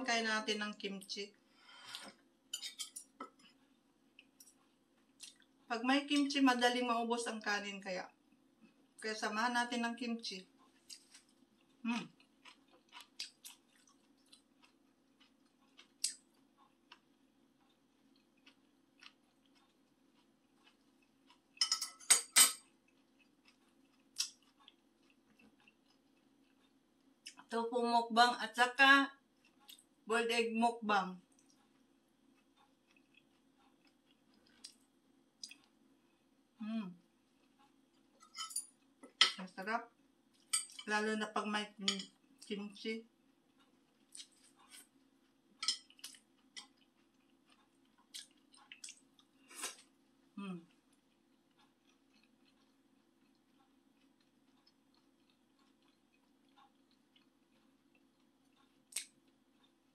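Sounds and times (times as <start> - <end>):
faint steady hum: 0.0 - 59.9
tableware clinking: 2.5 - 3.3, 21.6 - 22.6, 38.2 - 39.4
chewing clicks and smacks: 4.2 - 5.6, 10.8 - 21.6, 22.6 - 27.5, 31.3 - 35.8, 43.4 - 44.9, 45.6 - 49.9, 50.7 - 59.9.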